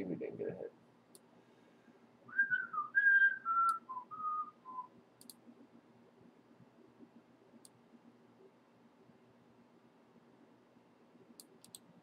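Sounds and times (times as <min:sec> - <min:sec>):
person whistling a tune: 0:02.3 - 0:04.9
faint clicks: 0:05.2 - 0:05.4, 0:07.6 - 0:07.8, 0:11.4 - 0:11.9.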